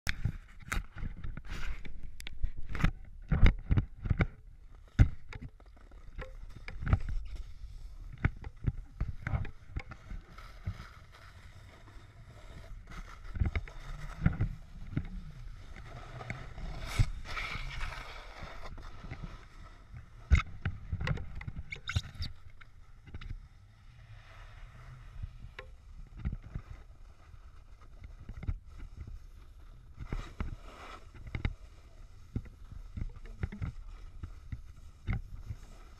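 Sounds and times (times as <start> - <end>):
snowboard scraping over snow: 10.4 - 20.2.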